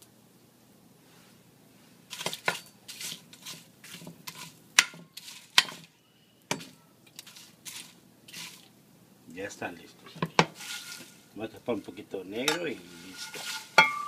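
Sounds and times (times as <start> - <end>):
utensil scraping frying pan: 2.1 - 5.9, 6.6 - 8.7, 10.1 - 14.0.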